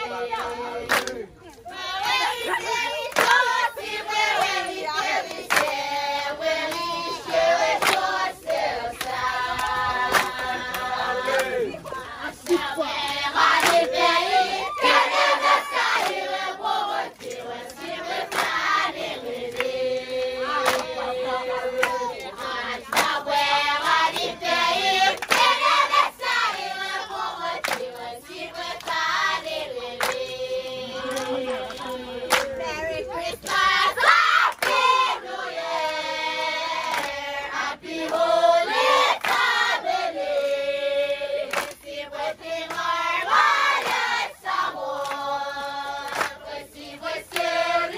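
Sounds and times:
group singing and chanting: 0.0s - 47.9s
sharp hand claps: 0.9s - 1.2s, 3.1s - 3.4s, 5.3s - 5.8s, 7.8s - 8.1s, 9.0s - 11.6s, 12.4s - 13.9s, 17.2s - 18.6s, 20.6s - 21.0s, 21.8s - 23.2s, 25.2s - 25.6s, 27.6s - 28.0s, 30.0s - 30.2s, 31.0s - 32.5s, 41.5s - 41.8s, 46.0s - 46.4s.

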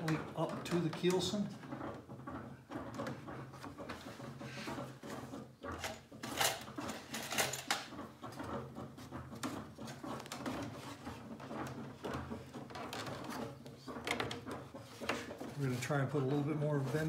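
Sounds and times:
hands clicking and tapping wood: 7.6s - 15.6s.

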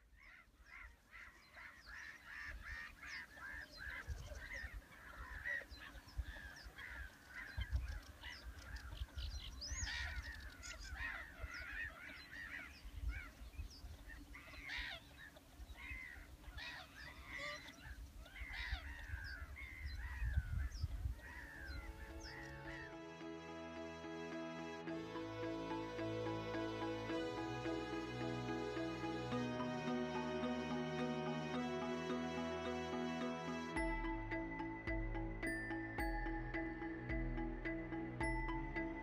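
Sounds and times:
flock of birds honking: 9.8s - 20.4s, 21.2s - 33.9s.

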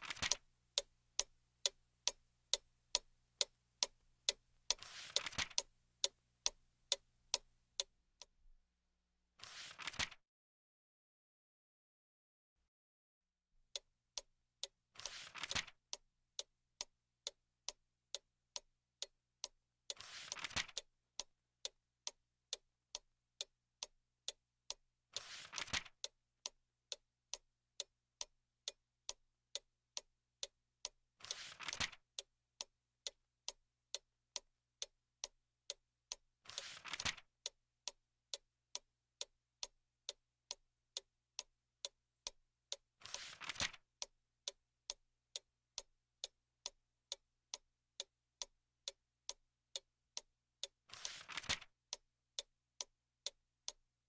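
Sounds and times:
clock ticking: 0.0s - 8.4s, 13.7s - 53.8s
book page turning: 4.8s - 5.6s, 9.4s - 10.2s, 15.0s - 15.7s, 20.0s - 20.8s, 25.2s - 25.9s, 31.3s - 32.0s, 36.5s - 37.2s, 43.0s - 43.8s, 50.9s - 51.7s.

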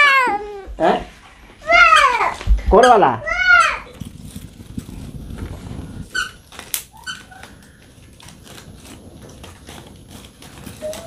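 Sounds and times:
cat mewing: 0.0s - 0.7s, 1.6s - 4.0s
twigs snapping and crackling: 3.6s - 11.0s.

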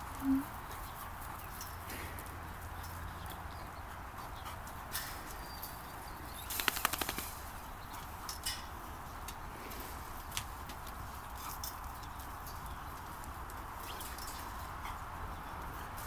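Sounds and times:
sharp clicks: 6.4s - 7.5s.

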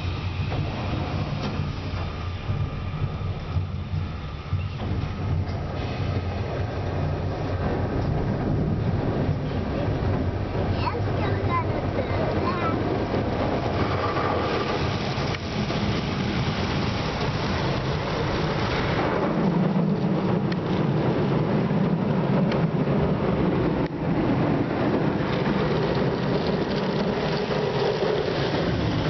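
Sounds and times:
water spraying on car body: 13.5s - 19.0s.

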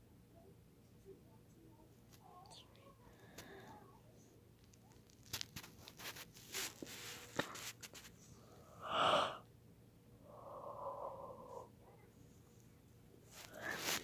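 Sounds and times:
breathy exhale: 8.5s - 9.4s, 10.2s - 11.8s.

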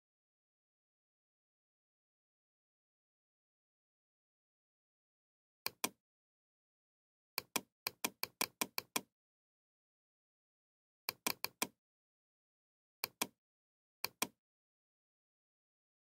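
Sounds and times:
computer mouse clicks: 5.7s - 6.0s, 7.4s - 9.1s, 11.1s - 11.8s, 13.0s - 13.4s, 14.0s - 14.4s.

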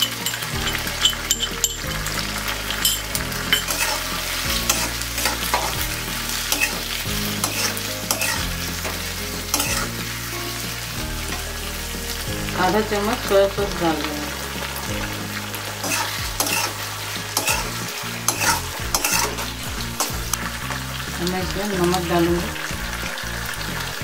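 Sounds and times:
metal spatula scraping pan: 0.0s - 10.0s, 15.4s - 20.4s
vegetables sizzling in oil: 0.0s - 24.0s.

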